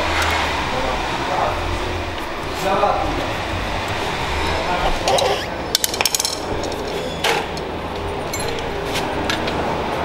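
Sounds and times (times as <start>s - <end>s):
metal hand tools clinking: 8.2s - 8.8s.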